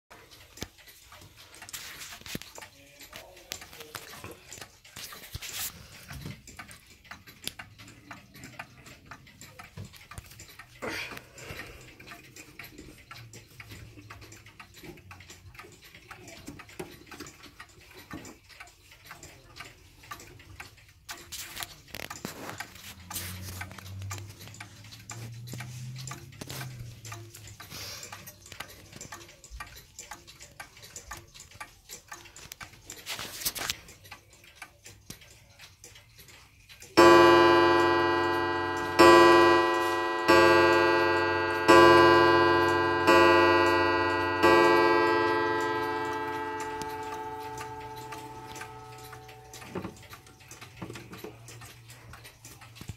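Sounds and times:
pendulum clock ticking: 0.1s - 52.9s
clock gong striking: 37.0s - 49.6s.

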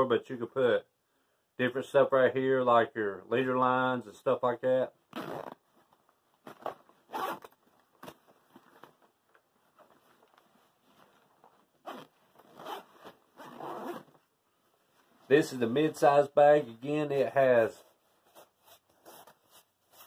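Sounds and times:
backpack zipper being pulled: 5.1s - 5.6s, 6.5s - 8.2s, 11.8s - 14.1s.

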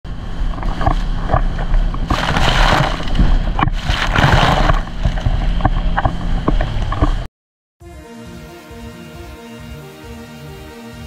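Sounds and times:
water rushing along hull: 0.1s - 7.3s
wind buffeting microphone: 0.1s - 7.3s
boat engine drone: 0.1s - 11.0s
splashing spray: 1.6s - 7.2s.

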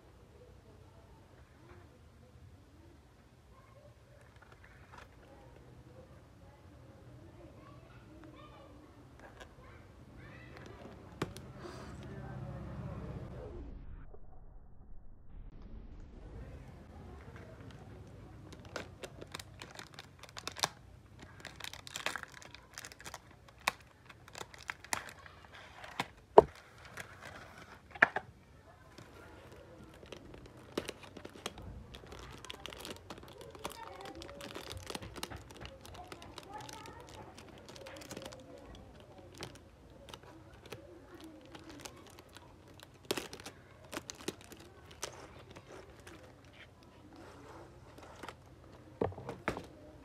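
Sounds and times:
plastic wrap crinkling: 17.2s - 28.1s, 28.7s - 49.9s.

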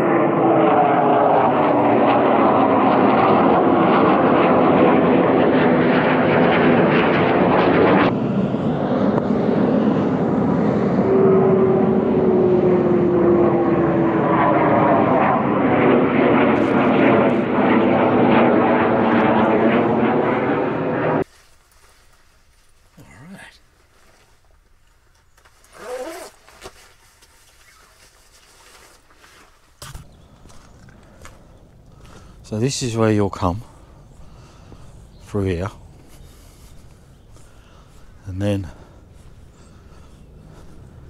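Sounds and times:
jet aircraft roaring overhead: 0.0s - 21.3s, 29.8s - 41.0s.

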